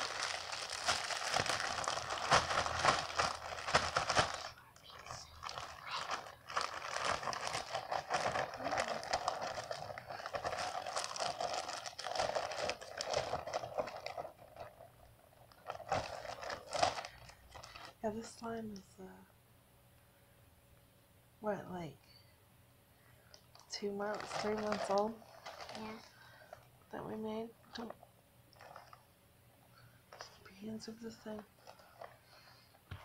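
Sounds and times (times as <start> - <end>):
plastic bag crinkling: 0.0 - 18.0, 23.5 - 26.6, 27.8 - 29.1.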